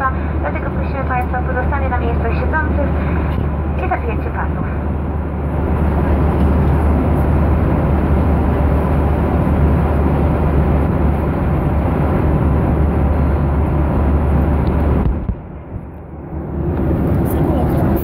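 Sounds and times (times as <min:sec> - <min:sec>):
jet engine drone: 0:00.0 - 0:18.0.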